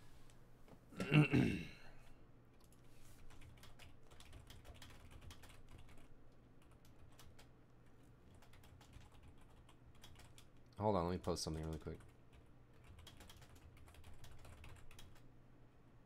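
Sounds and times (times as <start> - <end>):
keyboard typing clicks: 8.3 - 10.5.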